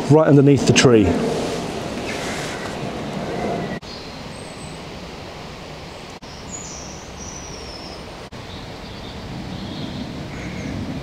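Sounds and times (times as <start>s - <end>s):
wind rumbling on microphone: 0.0s - 5.6s, 6.4s - 11.0s
small birds chirping: 5.8s - 11.0s.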